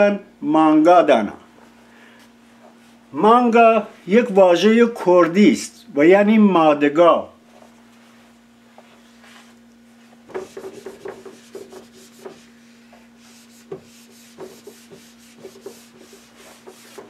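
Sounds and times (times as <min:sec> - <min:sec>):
whiteboard rubbing and squeaking: 0:10.3 - 0:12.5, 0:13.2 - 0:17.0.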